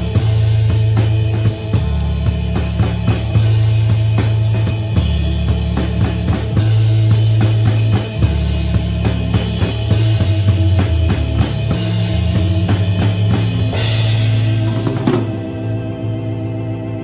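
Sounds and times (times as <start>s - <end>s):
recorded rock song with guitar: 0.0s - 16.8s
muffled drum kit playing: 0.0s - 17.0s
cymbal crash: 13.7s - 15.9s.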